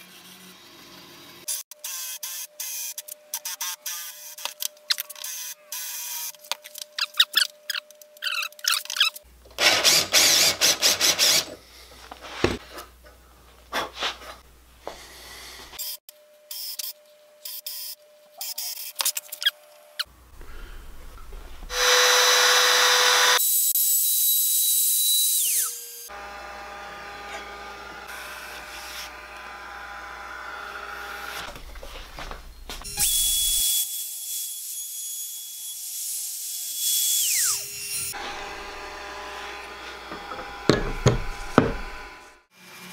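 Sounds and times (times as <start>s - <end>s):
drill boring into wood: 9.6s - 11.6s, 21.7s - 23.4s, 25.0s - 31.5s, 36.6s - 42.4s
router whining: 9.6s - 11.6s, 21.7s - 23.4s, 25.0s - 31.8s, 36.6s - 42.9s.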